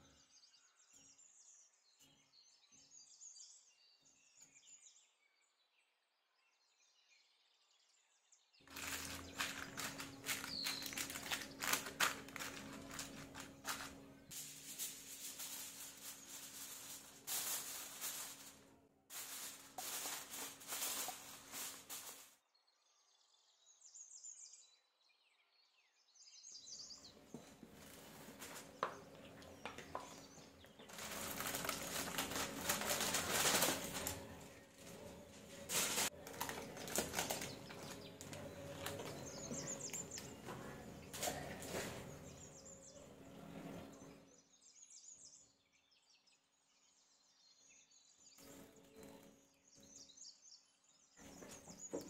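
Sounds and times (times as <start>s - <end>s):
paper and foil crinkling: 8.7s - 22.4s, 27.2s - 42.4s.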